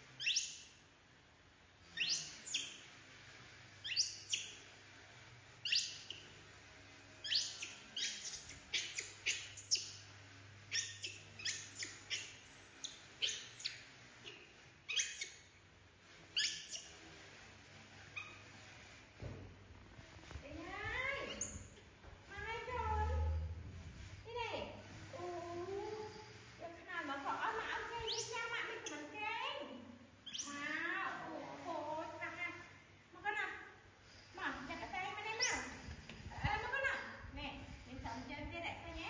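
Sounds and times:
baby monkey squealing: 0.2s - 0.8s, 2.0s - 2.8s, 3.8s - 4.6s, 5.6s - 6.2s, 7.2s - 10.0s, 10.7s - 15.5s, 16.4s - 16.9s, 21.2s - 21.8s, 28.0s - 29.1s, 30.2s - 30.7s, 35.4s - 35.9s.

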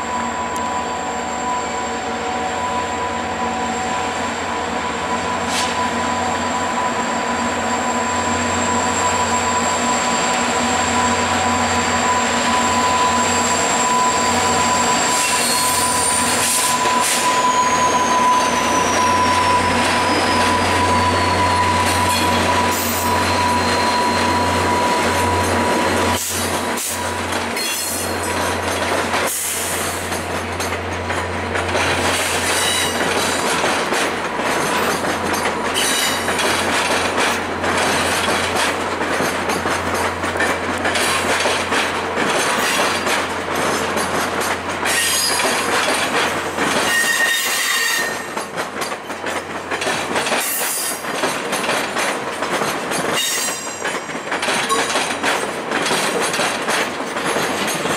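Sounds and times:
diesel locomotive drone: 0.0s - 57.9s
wheel squeals: 5.1s - 30.2s, 31.7s - 38.8s, 44.8s - 49.0s, 52.8s - 55.4s
train wheels clicking over rail joints: 7.8s - 57.9s.

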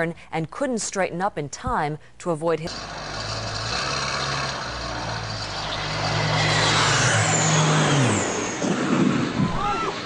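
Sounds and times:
propeller aircraft droning: 2.7s - 10.0s.

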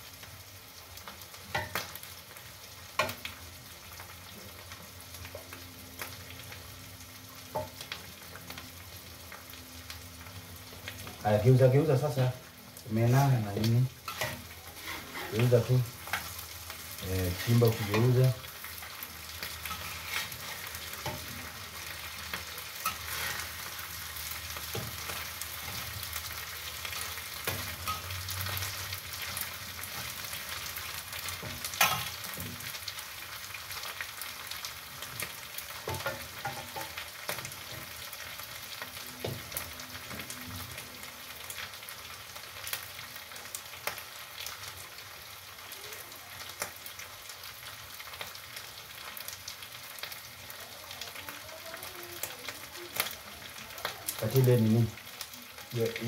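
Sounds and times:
fish and onions sizzling in oil: 0.0s - 56.0s
metal spatula scraping a pan: 14.0s - 16.5s, 17.3s - 18.8s, 19.4s - 26.0s, 26.9s - 30.7s, 31.4s - 32.7s.

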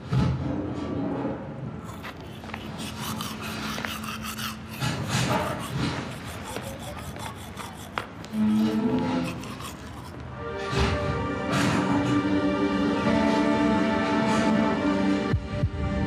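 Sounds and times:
toothbrush scrubbing teeth: 1.8s - 10.2s.

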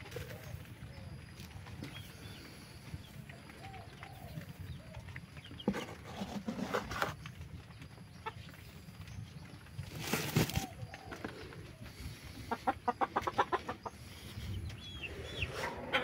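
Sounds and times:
chickens clucking softly: 0.0s - 16.0s
feed scooped into plastic bucket: 5.7s - 7.2s.

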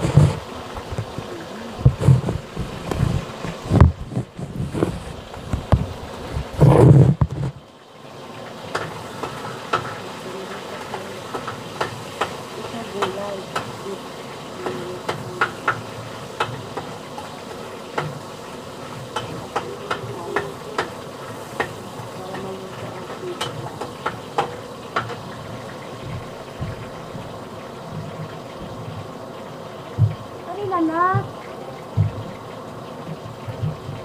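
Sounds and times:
steady background noise: 0.0s - 34.0s.

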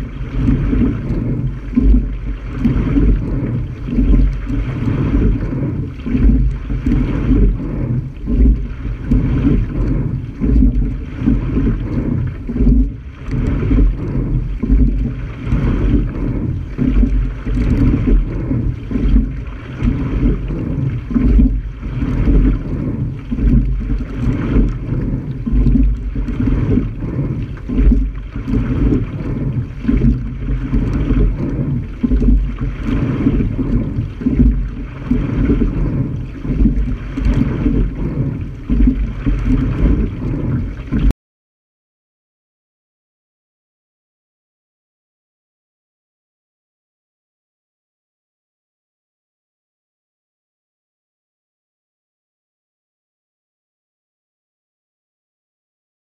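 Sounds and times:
water rushing along hull: 0.0s - 41.1s
wind buffeting microphone: 0.0s - 41.1s.

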